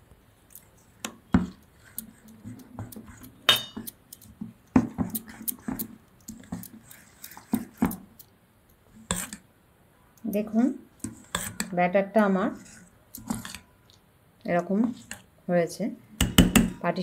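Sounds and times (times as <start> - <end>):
spoon clinking and scraping bowl: 1.4 - 4.3, 11.0 - 11.7, 12.5 - 13.8.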